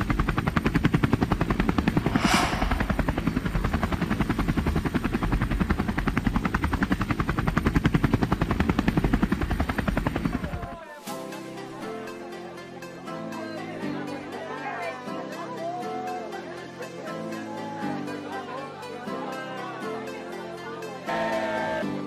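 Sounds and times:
short whoosh: 1.9 - 3.6
music: 9.0 - 22.0.

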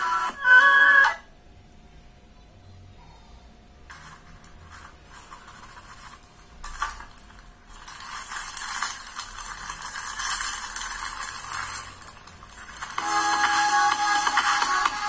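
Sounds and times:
plastic bag crinkling: 3.9 - 13.0.

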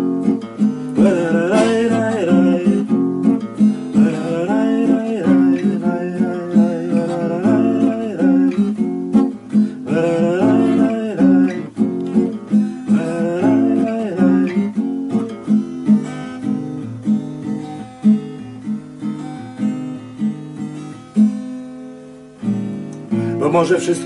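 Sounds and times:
acoustic guitar playing: 0.0 - 24.0
man humming: 4.0 - 8.7, 9.8 - 12.2, 12.9 - 14.6.

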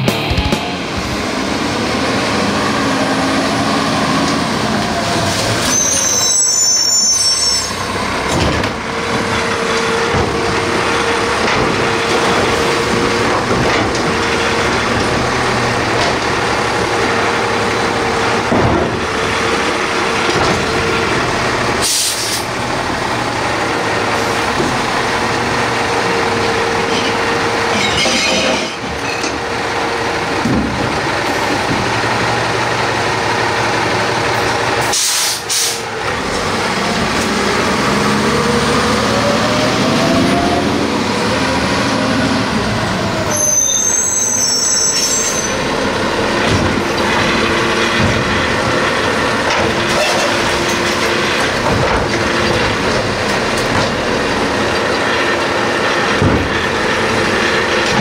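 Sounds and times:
diesel truck engine running: 0.0 - 5.6, 7.8 - 44.0, 45.5 - 58.0
air brakes squeal and hiss: 5.6 - 7.9, 21.8 - 22.5, 34.8 - 35.9, 43.3 - 45.6
carts thumping: 8.2 - 21.4, 45.7 - 58.0.

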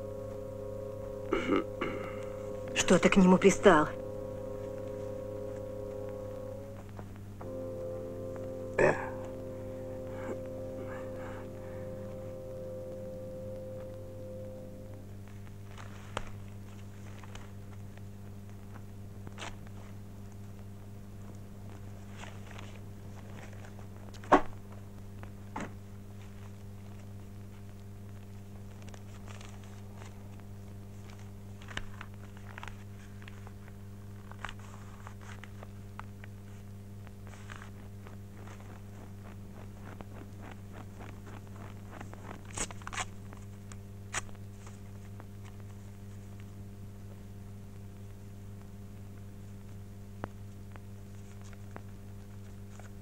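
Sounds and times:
low soundtrack hum: 0.0 - 15.8
low electrical hum: 0.0 - 53.0.

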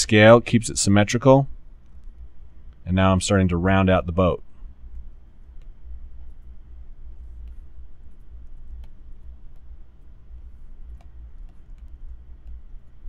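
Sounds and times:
steady low hum: 0.0 - 13.0
mouse and keyboard clicks: 10.8 - 13.0.

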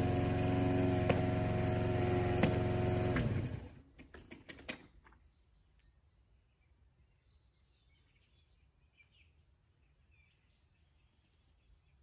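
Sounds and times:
lawn mower engine running: 0.0 - 4.6.

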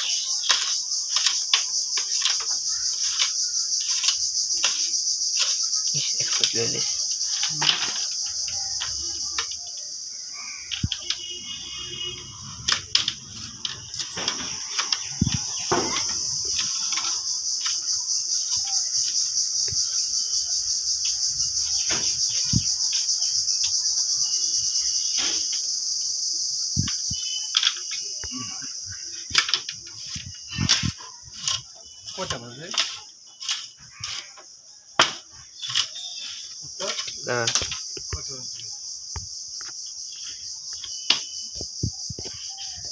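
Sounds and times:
high-pitched insect drone: 0.0 - 42.9
blade chopping bamboo on wood: 0.1 - 5.6, 29.3 - 34.3, 35.0 - 38.1.

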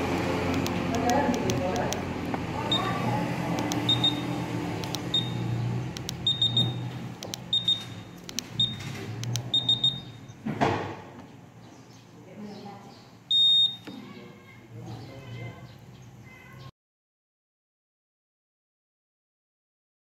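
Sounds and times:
scooter buzzer beeping: 2.7 - 3.0, 3.6 - 10.4, 13.3 - 13.9.

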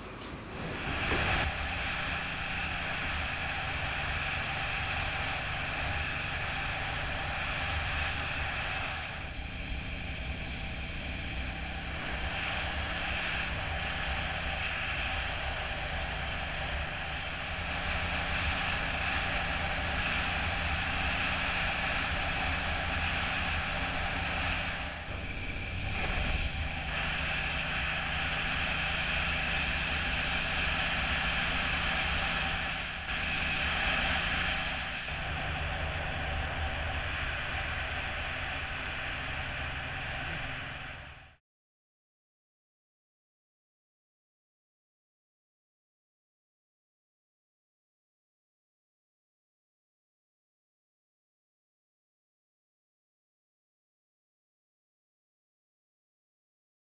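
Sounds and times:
wind rush on microphone: 0.0 - 41.2
motorcycle engine drone: 0.0 - 41.4.

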